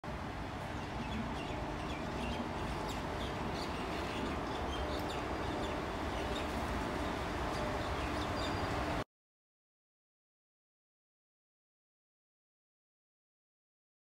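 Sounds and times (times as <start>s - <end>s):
birds chirping: 0.6s - 8.9s.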